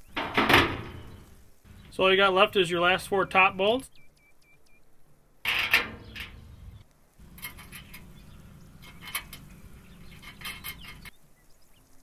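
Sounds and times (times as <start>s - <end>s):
metal clicks of bolt and nut: 8.8s - 11.1s.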